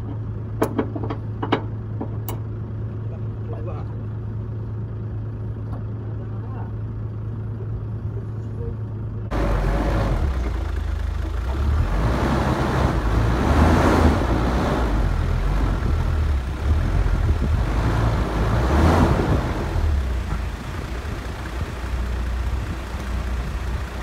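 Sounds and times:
wind buffeting microphone: 15.6s - 24.0s.

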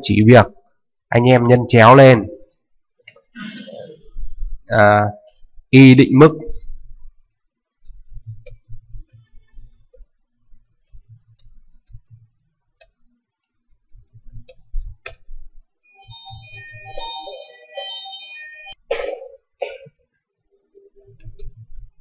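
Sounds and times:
typing on computer keyboard: 7.9s - 10.2s, 10.8s - 13.0s, 13.7s - 15.3s
electronic musical tones: 15.8s - 18.8s.

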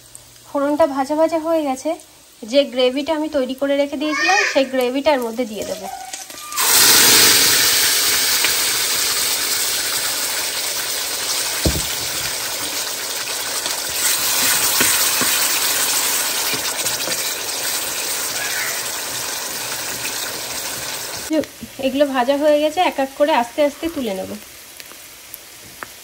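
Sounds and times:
paste sizzling in hot oil: 0.0s - 26.0s
dull knock: 11.6s - 12.4s.

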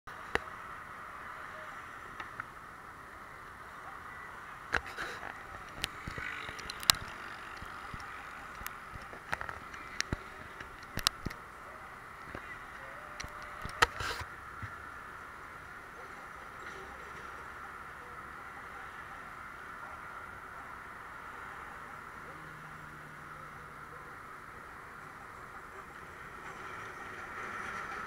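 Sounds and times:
expressway traffic noise: 0.1s - 28.0s
fingers handling camera: 4.8s - 11.4s.

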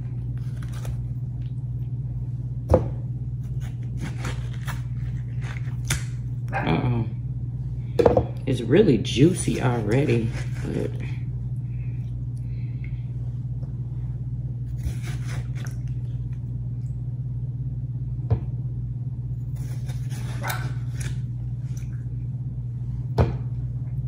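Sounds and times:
juicer motor humming: 0.0s - 24.0s
fruit churning in juicer: 8.8s - 11.3s.

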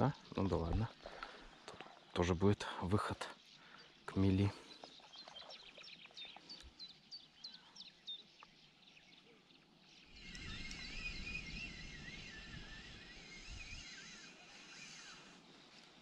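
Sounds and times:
songbirds singing: 0.0s - 16.0s.

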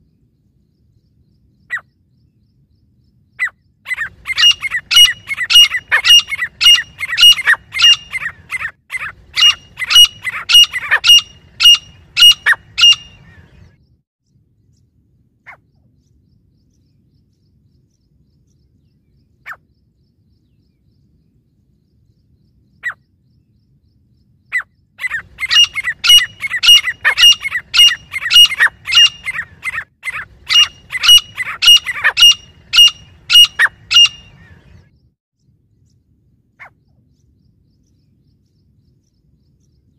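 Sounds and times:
faint bird chirps: 0.0s - 39.9s
francolin calling: 3.4s - 13.6s, 24.4s - 34.8s.

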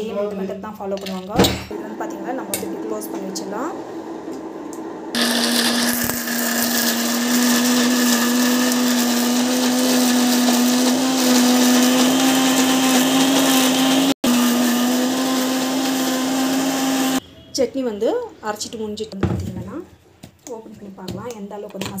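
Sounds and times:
mixer grinder motor whirring: 1.8s - 17.2s.

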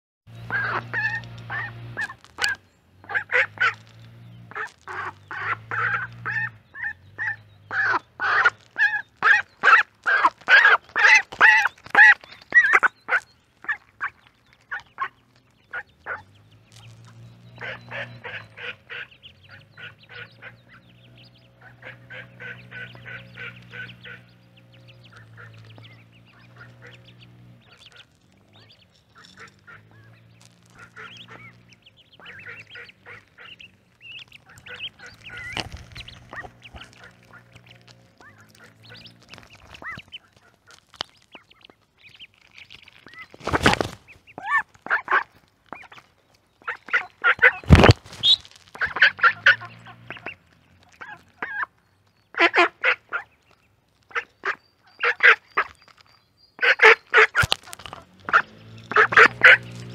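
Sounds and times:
duckling peeps: 0.3s - 59.9s
duck quacks: 0.5s - 3.8s, 4.5s - 16.2s, 17.6s - 20.9s, 21.5s - 28.1s, 29.2s - 39.1s, 44.4s - 46.0s, 46.6s - 51.7s, 52.3s - 53.3s, 54.1s - 55.7s, 56.6s - 59.9s.

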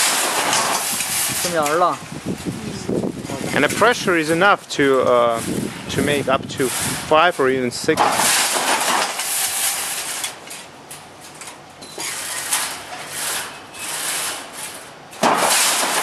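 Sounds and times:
wire mesh scraping and rustling: 0.0s - 16.0s.

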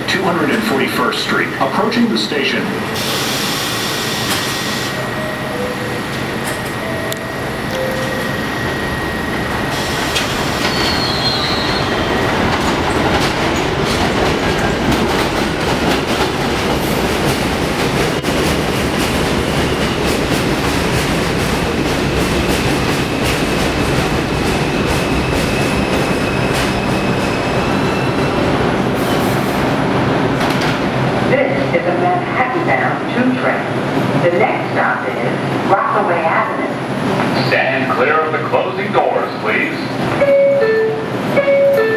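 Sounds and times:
subway train rumbling: 0.0s - 41.9s
wheels squealing on rails: 2.9s - 13.1s, 24.5s - 29.4s.

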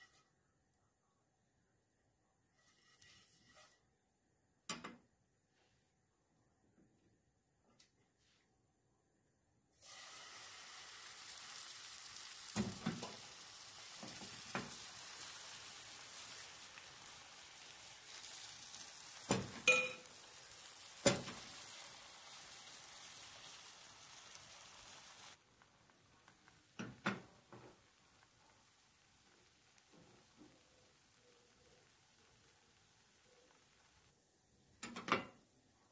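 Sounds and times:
batter sizzling in a frying pan: 9.8s - 35.9s.

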